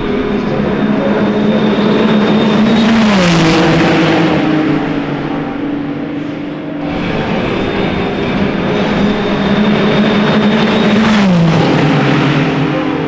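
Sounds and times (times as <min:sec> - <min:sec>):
race cars at speed: 0:00.0 - 0:13.0.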